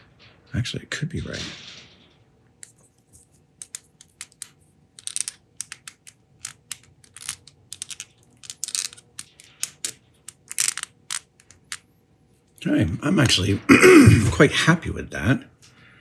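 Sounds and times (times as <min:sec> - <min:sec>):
screwdriver clicking on metal parts: 0:03.6 - 0:11.8.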